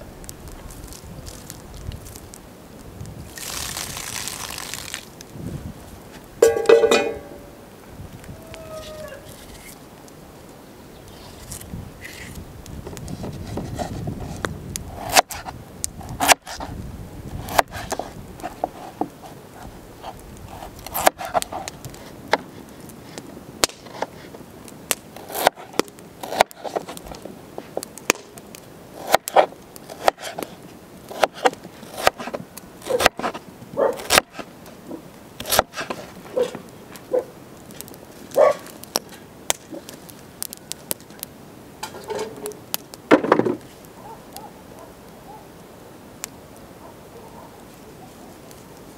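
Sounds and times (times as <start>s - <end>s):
peeling scraping: 8.6s - 9.8s, 11.1s - 16.8s, 35.4s - 36.6s.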